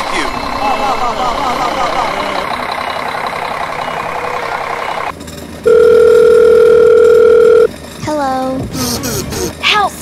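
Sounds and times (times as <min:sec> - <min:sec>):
heavy vehicle engine running: 0:00.0 - 0:10.0
steady telephone tone: 0:05.7 - 0:07.7.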